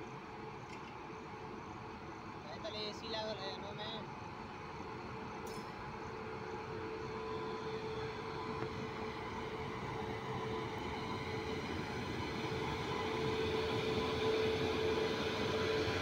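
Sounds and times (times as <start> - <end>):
freight train rumbling on rails: 5.5 - 16.0.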